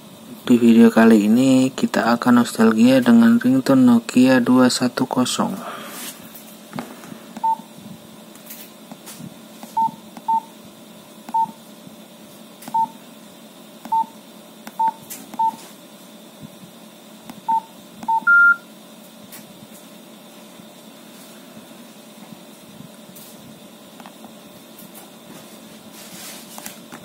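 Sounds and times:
short keypad beeps: 9.8s - 10.5s, 11.3s - 11.6s, 12.7s - 13.0s, 13.9s - 14.1s, 14.8s - 15.6s, 17.5s - 18.6s.

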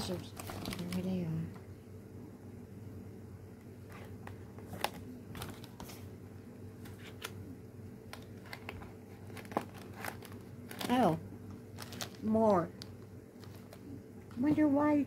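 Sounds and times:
steady low hum: 0.0s - 15.0s
package being cut and handled: 8.1s - 11.0s.

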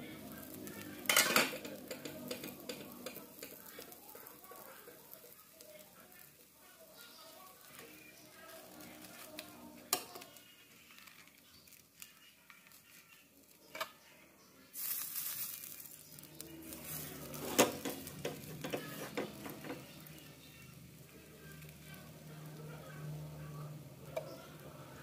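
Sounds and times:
loud sizzle in frying pan: 0.0s - 13.6s, 14.7s - 25.0s
clinks and knocks against pan: 1.1s - 3.6s.

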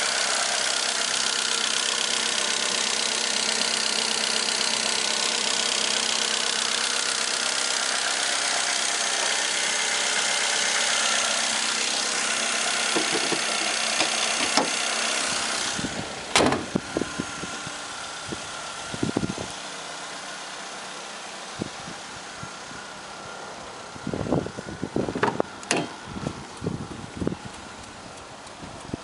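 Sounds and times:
car engine idling: 0.0s - 29.0s
car bonnet slamming shut: 12.9s - 14.8s, 16.3s - 16.8s, 25.2s - 26.0s.

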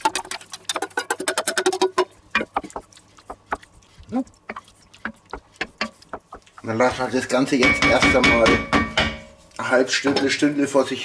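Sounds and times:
wooden spoon stirring stew: 0.0s - 11.0s
spoon knocking against pot: 7.5s - 9.4s.

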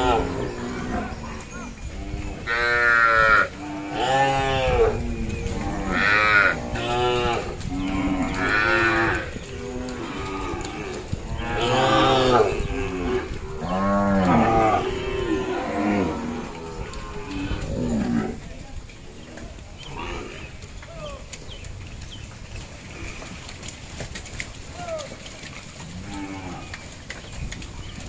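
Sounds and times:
cattle mooing: 0.0s - 18.4s.

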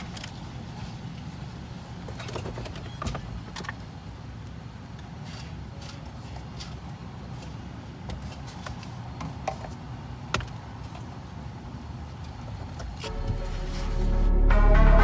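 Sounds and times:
music: 13.0s - 15.0s.

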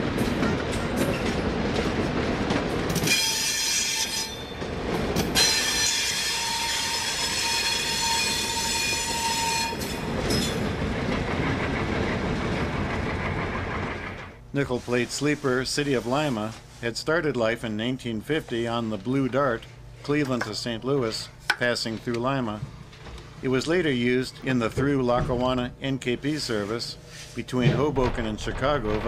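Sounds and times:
train wheels clicking over rail joints: 0.0s - 14.5s
steel wheel squeal: 3.0s - 4.6s, 5.4s - 10.7s.

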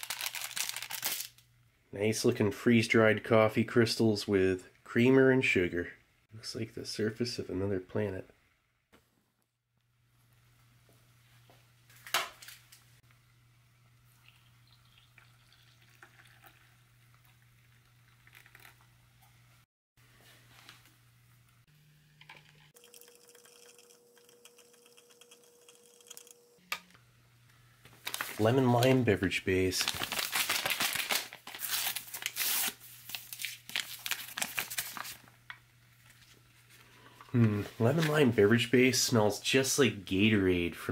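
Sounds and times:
water trickling into a glass: 14.1s - 18.8s, 22.8s - 26.2s
paper ripping: 28.0s - 28.9s, 29.7s - 35.2s
paper pouch rustling: 28.0s - 29.0s, 29.6s - 35.3s.

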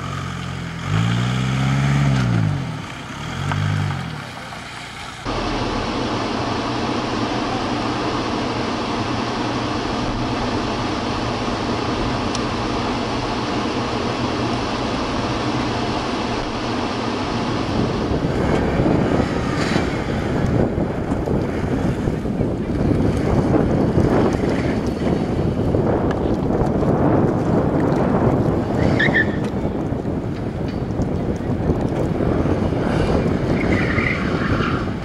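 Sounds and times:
car driving noise: 0.0s - 35.0s
wind buffeting microphone: 16.2s - 35.0s.

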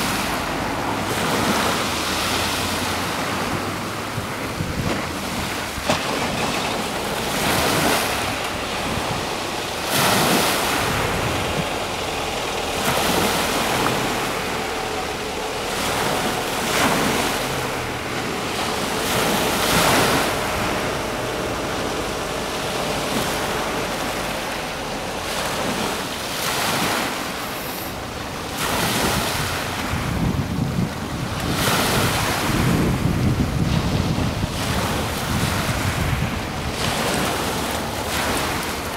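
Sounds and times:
choppy sea water washing in: 0.0s - 38.9s
wind buffeting microphone: 0.0s - 38.9s.

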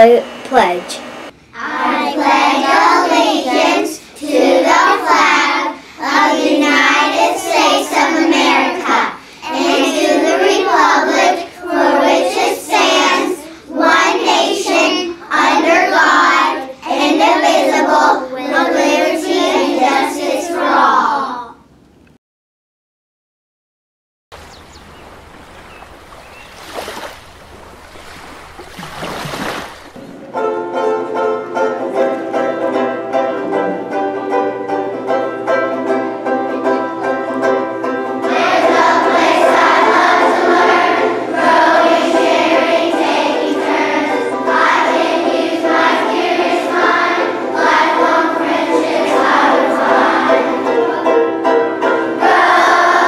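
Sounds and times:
choir singing: 1.6s - 21.4s, 30.3s - 53.0s
instrumental music: 30.0s - 53.0s.

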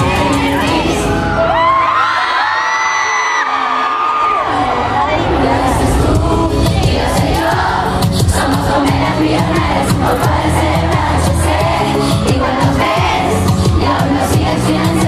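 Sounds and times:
woman singing: 0.0s - 1.2s, 4.4s - 15.0s
crowd voices: 0.0s - 15.0s
live pop song over speakers: 0.0s - 15.0s.

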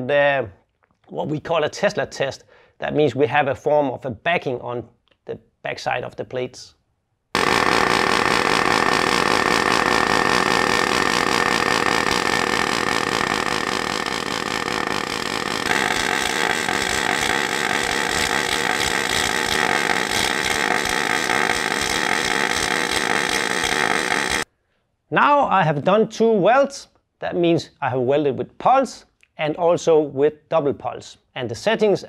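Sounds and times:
pulsed welding arc: 7.4s - 24.5s.

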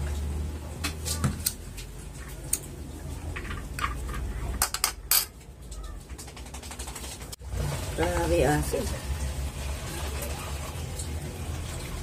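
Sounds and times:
plastic cup set on tiled table: 0.1s - 6.9s.

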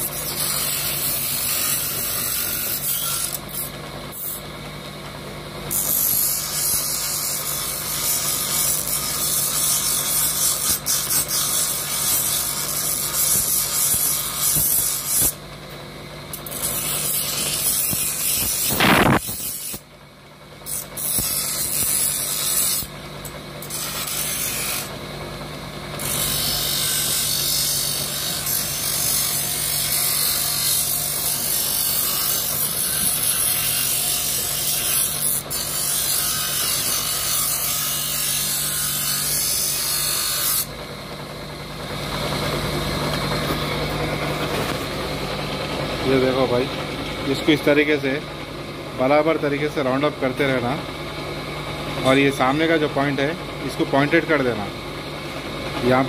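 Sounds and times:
bench grinder humming: 0.0s - 56.0s.

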